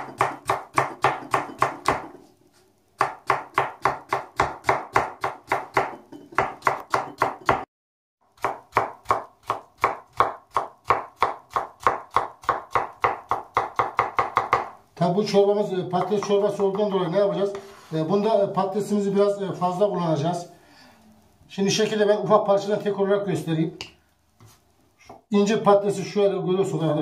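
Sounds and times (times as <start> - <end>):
knife chopping on plastic board: 0.0 - 2.2, 3.0 - 7.6, 8.4 - 14.7.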